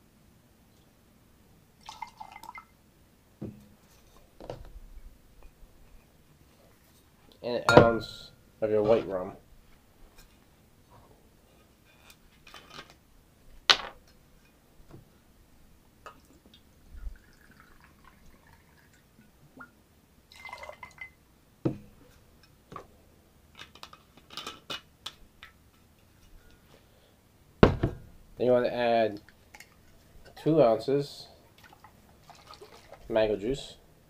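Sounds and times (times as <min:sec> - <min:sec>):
liquid trickling into glass: 0:01.8 - 0:02.7, 0:17.0 - 0:19.1, 0:20.3 - 0:21.2, 0:31.6 - 0:33.0
glass clinking: 0:07.7 - 0:08.2.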